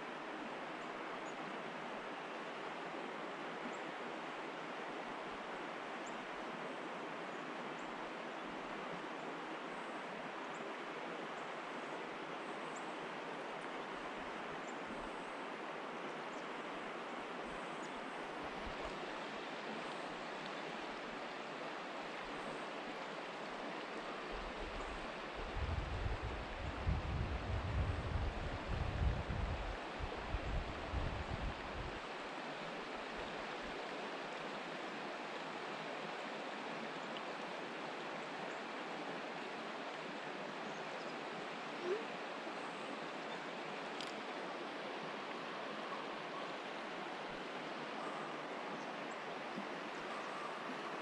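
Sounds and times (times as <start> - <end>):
creek water flowing: 0.0 - 51.0
faint high ticks: 43.9 - 44.2.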